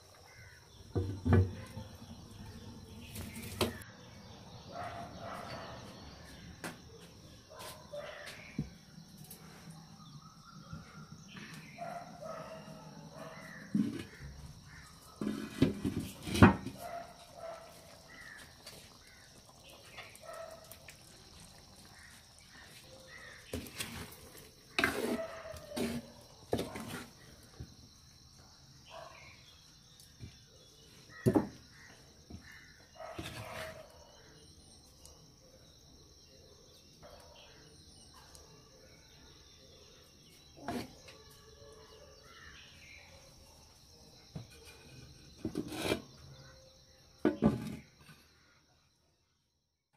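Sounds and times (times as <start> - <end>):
faint birds calling: 0.2 - 15.2.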